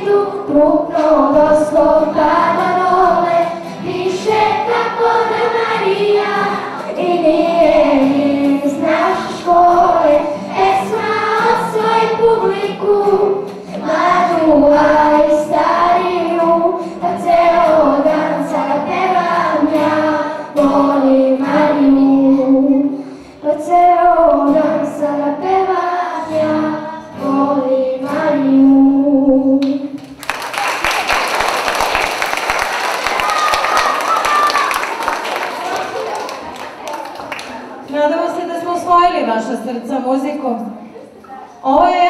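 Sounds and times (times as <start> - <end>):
children's choir singing: 0.0 - 30.0, 30.8 - 37.9
acoustic guitars: 0.0 - 42.0
applause: 30.0 - 37.7.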